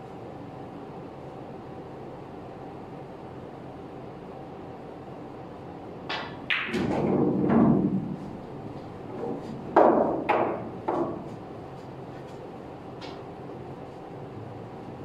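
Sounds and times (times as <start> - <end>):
pool cue striking ball: 6.1 - 8.4, 9.2 - 11.4
billiard balls clacking: 6.1 - 11.4
ball rolling rumble: 6.5 - 11.4.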